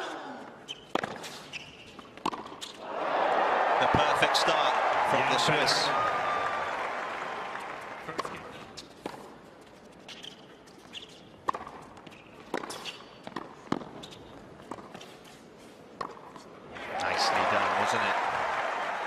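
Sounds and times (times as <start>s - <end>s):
shoe squeaks: 0.6s - 2.8s, 9.6s - 15.4s
tennis ball bouncing: 0.7s - 2.8s, 11.4s - 15.0s, 16.0s - 16.4s.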